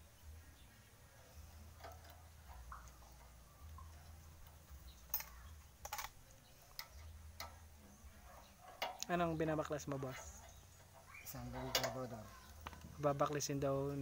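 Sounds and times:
metallic clicks of hand tools: 4.4 - 7.6.

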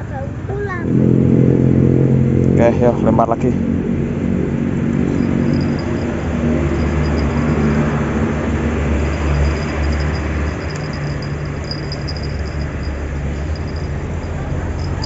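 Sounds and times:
motor engine rumbling: 0.0 - 15.0
faint high-pitched tone: 5.1 - 8.0.

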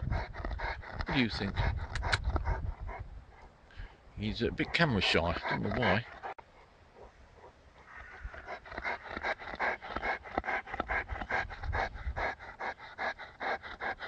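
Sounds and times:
dog panting hard: 0.0 - 3.5, 4.4 - 6.4, 8.3 - 14.0.

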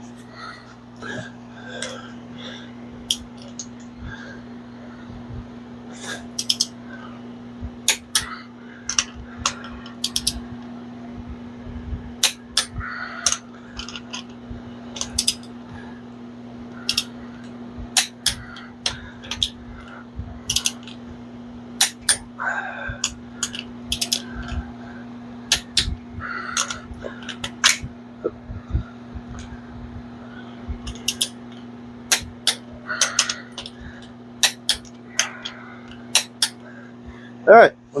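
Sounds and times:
low hum: 0.0 - 38.0
torque wrench clicks and ratcheting: 6.4 - 6.7, 7.9 - 8.3, 10.0 - 10.4, 12.2 - 14.2, 15.0 - 15.5, 16.8 - 17.1, 18.0 - 19.6, 20.5 - 21.0, 23.0 - 24.3, 25.5 - 25.9, 30.9 - 31.4, 32.1 - 33.8, 34.4 - 35.3, 36.1 - 36.6.

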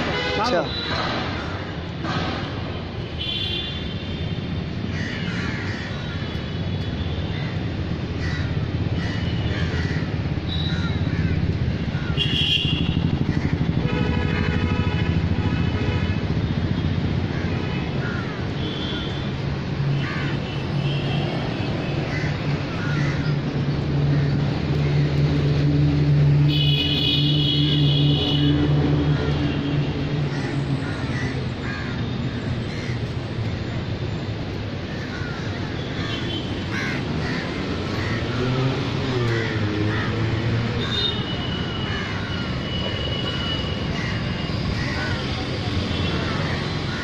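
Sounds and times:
traffic hum: 0.0 - 47.0
crows cawing: 4.9 - 6.3, 7.3 - 12.4, 17.3 - 19.2, 19.9 - 20.5, 22.0 - 25.1, 30.2 - 33.6, 34.8 - 42.7, 43.3 - 45.4, 46.0 - 47.0.

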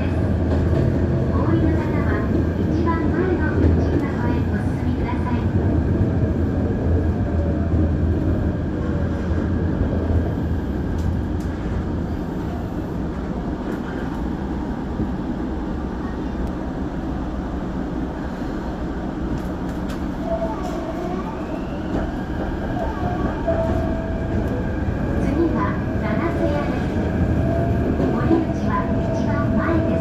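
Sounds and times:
electric train running hum: 0.0 - 30.0.

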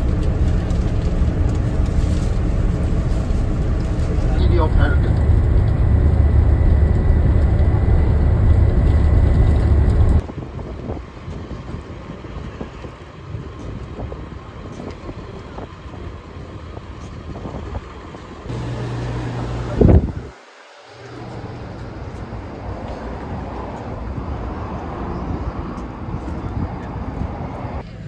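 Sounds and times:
low hum: 0.0 - 10.2, 18.5 - 23.5
coach engine rumble: 0.0 - 28.0.

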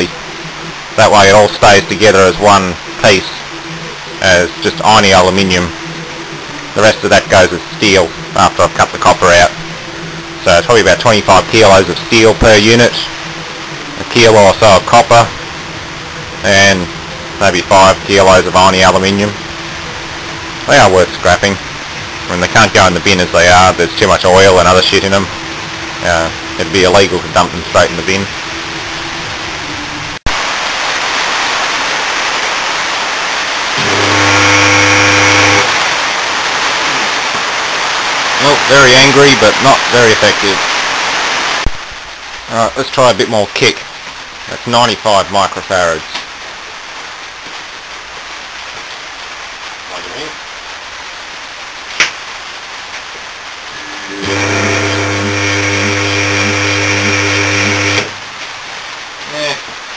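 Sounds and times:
rain hissing: 0.0 - 59.9
loud pulsing electrical hum: 5.7 - 30.2, 33.8 - 36.4, 53.7 - 58.4
compressor motor humming: 33.8 - 35.8, 53.8 - 58.2.

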